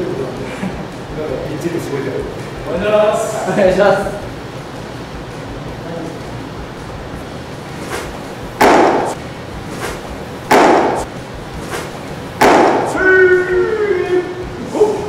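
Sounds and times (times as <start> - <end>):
loud thuds: 7.8 - 13.0
voice calling: 12.6 - 15.0.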